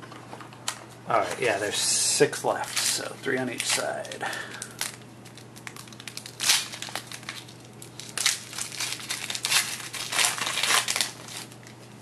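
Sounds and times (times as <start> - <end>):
wrapper crinkling and tearing: 2.6 - 11.8.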